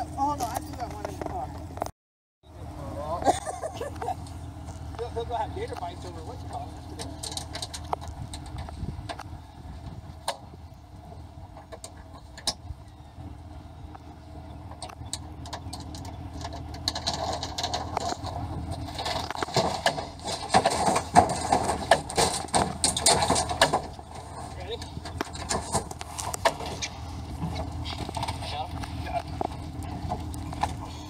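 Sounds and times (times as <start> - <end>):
vehicle engine idling: 0.0 - 31.0
clattering in metal box: 19.0 - 26.8.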